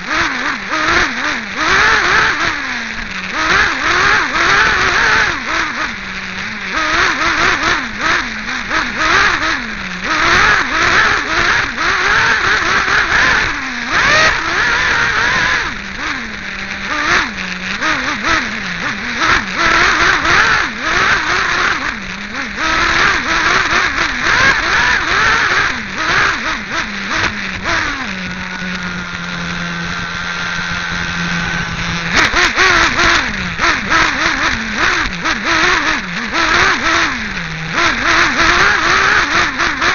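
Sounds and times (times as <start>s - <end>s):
small engine revving: 0.0s - 39.9s.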